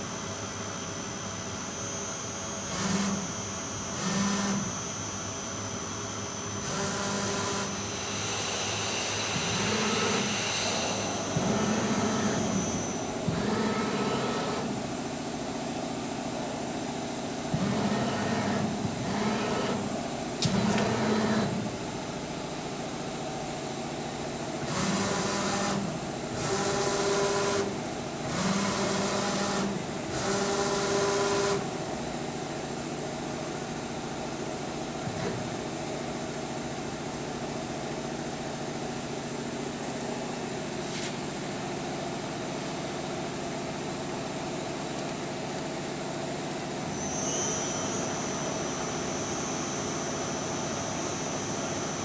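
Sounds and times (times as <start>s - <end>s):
short machine whirs: 6.5s - 14.8s, 46.8s - 52.0s.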